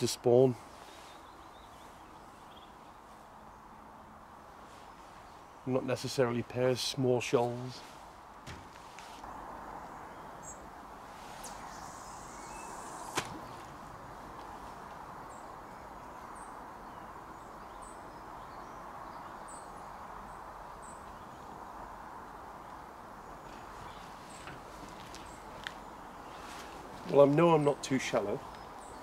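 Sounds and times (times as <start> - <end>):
line hissing off reel: 11.2 - 13.6.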